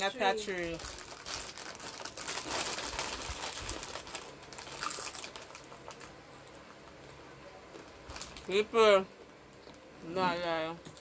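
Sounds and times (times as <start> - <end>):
plastic wrapper crinkling: 0.0 - 8.7
crackers being chewed: 0.9 - 8.5, 9.4 - 10.0.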